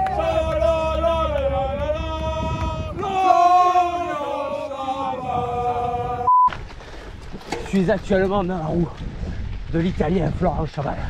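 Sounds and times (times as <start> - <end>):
men chanting in unison: 0.0 - 6.3.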